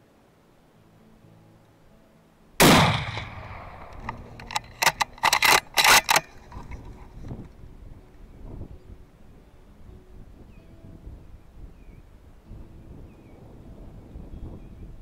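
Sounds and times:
rifle shot with echo: 2.6 - 6.2
sharp clicks and knocks: 3.8 - 7.0.

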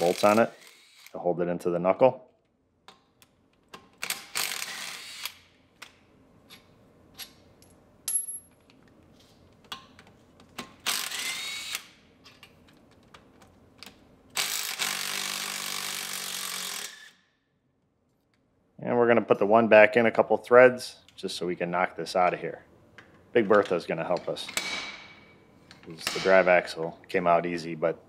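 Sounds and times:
cordless electric ratchet whining: 0.0 - 1.2, 10.8 - 11.9, 14.4 - 17.2.

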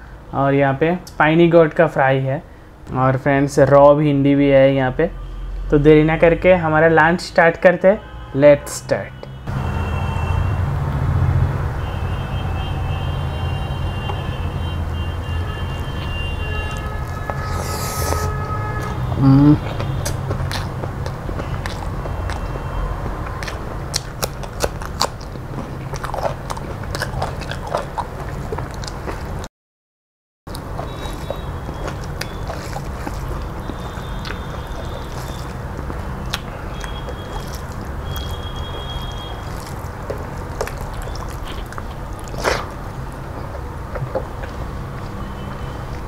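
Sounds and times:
chewing: 16.6 - 29.5, 30.5 - 46.0
crunching bites of okra: 19.7 - 22.6, 23.2 - 29.3, 30.5 - 45.2.

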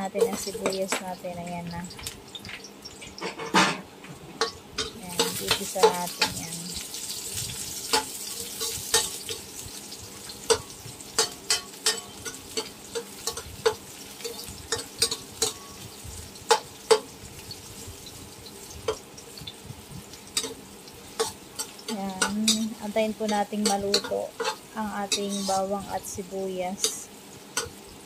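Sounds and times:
garlic and onion sizzling in oil: 0.0 - 28.0
spatula scraping a wok: 4.4 - 25.9.

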